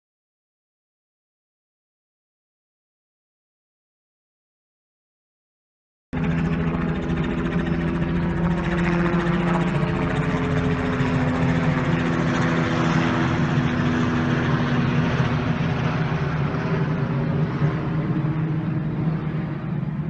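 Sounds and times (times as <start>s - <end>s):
helicopter engine hum: 6.2s - 20.0s
helicopter rotor beating: 6.2s - 20.0s.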